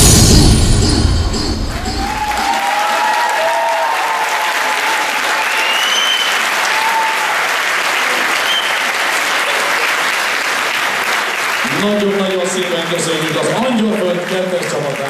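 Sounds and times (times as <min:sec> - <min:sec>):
audience applauding: 0:01.7 - 0:15.0
high shouts: 0:01.8 - 0:07.6.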